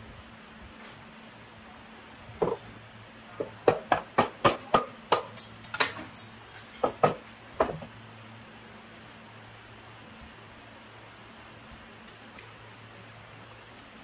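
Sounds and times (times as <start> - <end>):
metal tapping and clinking: 5.1 - 7.2.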